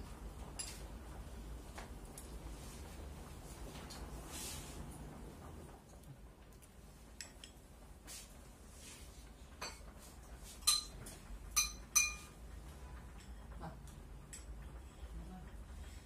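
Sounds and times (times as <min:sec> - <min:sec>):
utensils clinking on porcelain bowls: 0:10.6 - 0:12.3.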